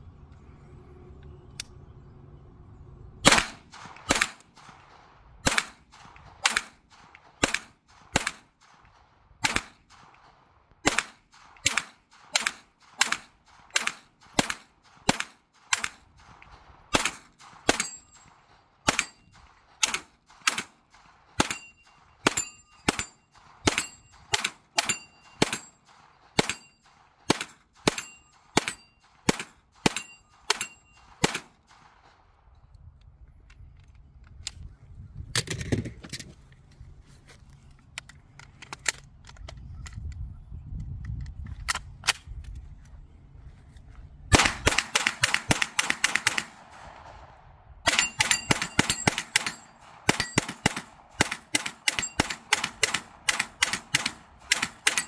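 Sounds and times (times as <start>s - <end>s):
rapid gunshots: 3.2s - 32.3s, 44.3s - 55.0s
bullets pinging on steel target: 10.9s - 31.9s, 47.9s - 55.0s.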